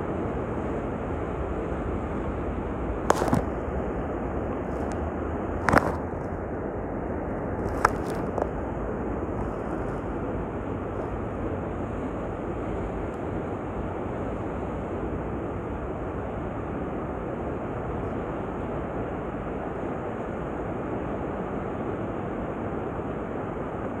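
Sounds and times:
sea surf breaking on shore: 0:00.0 - 0:24.0
wind on microphone: 0:00.0 - 0:24.0.

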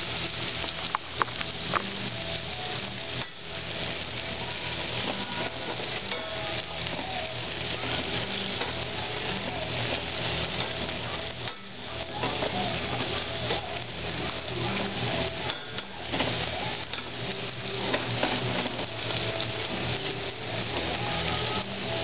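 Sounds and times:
food sizzling in a pan: 0:00.0 - 0:22.0.

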